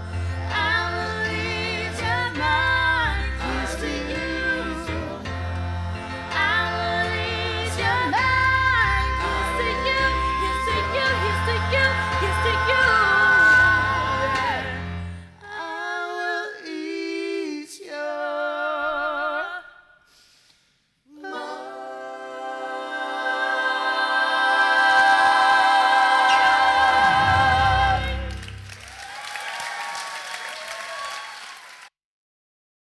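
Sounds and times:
voices singing a cappella: 0.0 - 19.8, 21.1 - 28.5
applause: 28.2 - 32.0.

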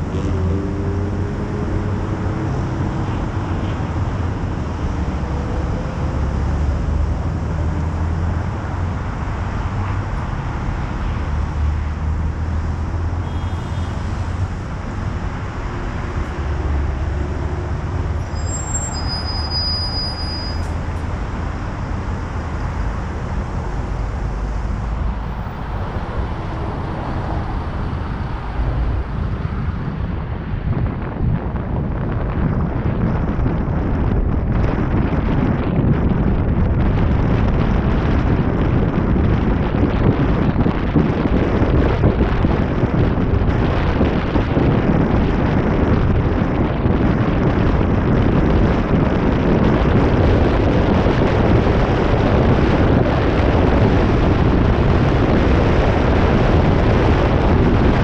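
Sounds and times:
road and traffic noise: 0.0 - 58.0
wind buffeting microphone: 0.0 - 58.0.

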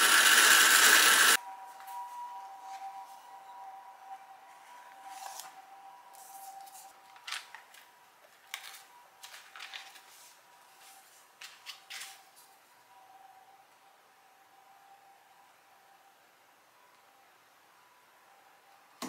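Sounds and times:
foil paper wrapper crinkling: 6.4 - 10.2.

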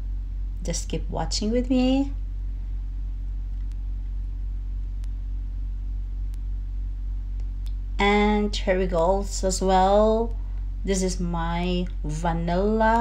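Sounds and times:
low background hum: 0.0 - 13.0
faint clicks: 3.5 - 3.9, 5.0 - 5.2.

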